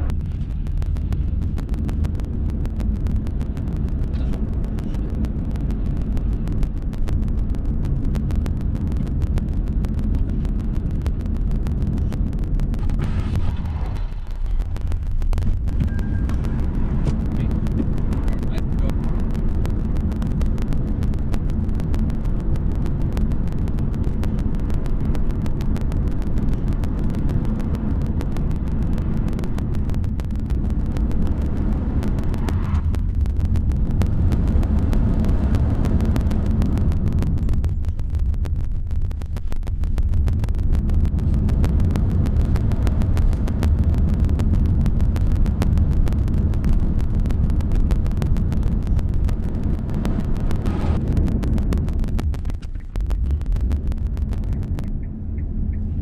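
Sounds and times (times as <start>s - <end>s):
car road noise from inside: 0.0s - 56.0s.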